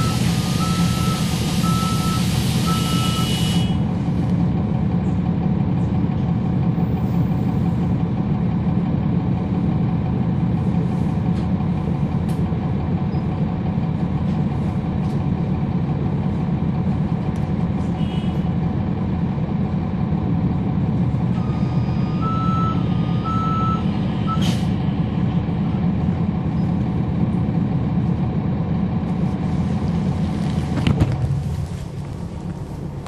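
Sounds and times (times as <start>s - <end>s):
bus diesel engine running: 0.0s - 33.0s
air brake hiss: 24.4s - 24.8s.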